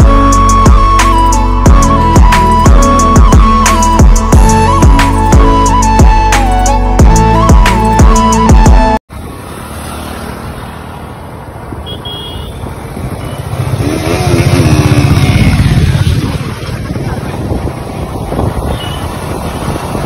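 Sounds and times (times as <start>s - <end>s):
flute music: 0.0s - 9.0s
road noise: 0.0s - 20.0s
motorcycle engines riding: 9.1s - 20.0s.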